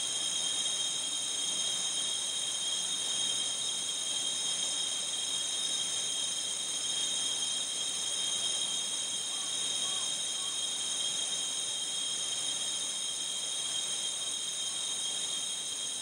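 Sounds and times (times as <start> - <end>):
high steady ringing tones: 0.0 - 16.0.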